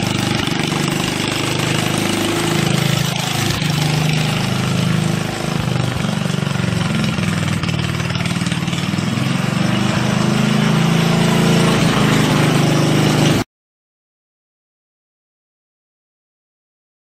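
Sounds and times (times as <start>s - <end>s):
small engine running: 0.0s - 13.4s.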